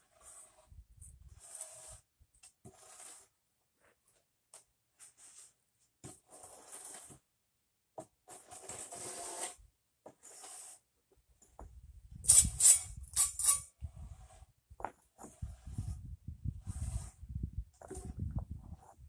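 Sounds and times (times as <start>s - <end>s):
board scraping sand: 0.0s - 3.4s, 5.0s - 7.2s, 8.3s - 10.9s, 12.4s - 19.0s.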